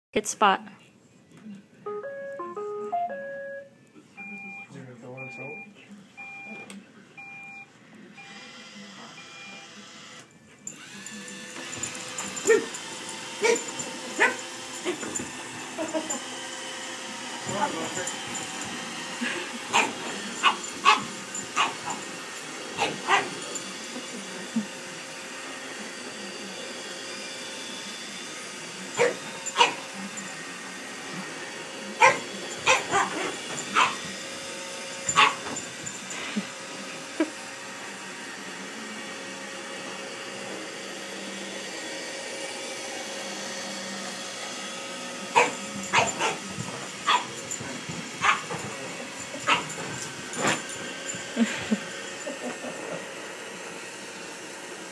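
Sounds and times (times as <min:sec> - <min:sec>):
dog barking: 0:13.4 - 0:15.0, 0:19.7 - 0:22.0, 0:22.8 - 0:23.4, 0:29.0 - 0:29.8, 0:32.0 - 0:34.1, 0:35.1 - 0:35.6, 0:45.4 - 0:47.4, 0:48.2 - 0:48.7, 0:49.4 - 0:49.8.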